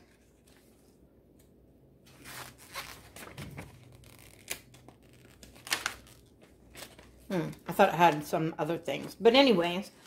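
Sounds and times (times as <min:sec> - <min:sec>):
paper pages rustling: 0:00.0 - 0:07.3.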